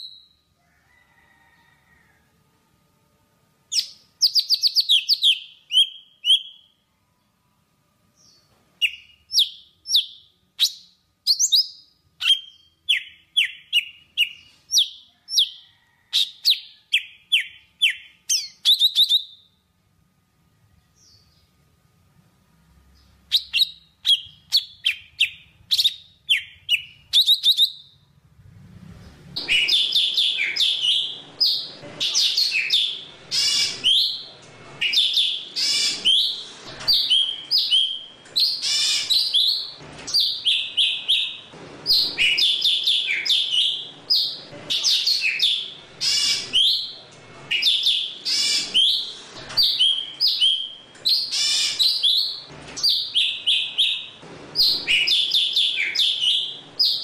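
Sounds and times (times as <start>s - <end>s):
bird singing: 3.7s - 6.8s, 29.4s - 36.4s, 37.0s - 57.0s.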